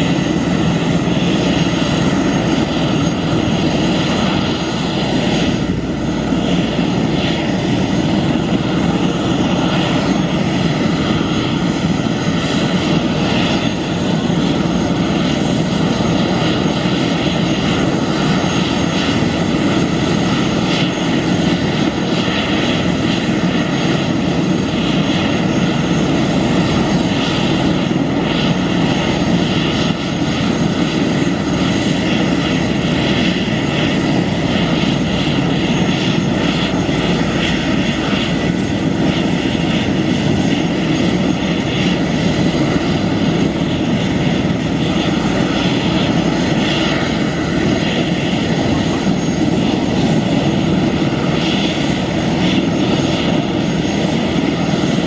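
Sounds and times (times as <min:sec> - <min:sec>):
helicopter rotors turning: 0:00.0 - 0:55.0
helicopter turbine whine: 0:00.0 - 0:55.0.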